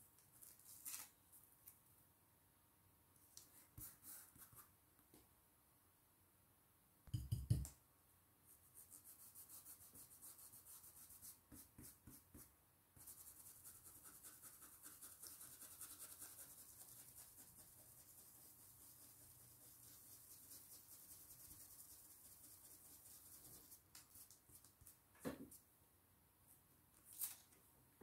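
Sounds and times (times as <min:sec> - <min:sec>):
stencil brush scratchy strokes: 0:08.5 - 0:24.7.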